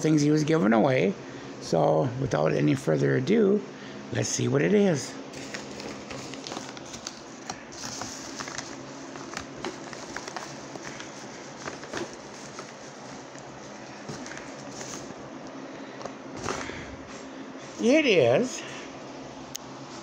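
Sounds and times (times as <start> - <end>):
paper mailer rustling and crinkling: 5.3 - 17.0.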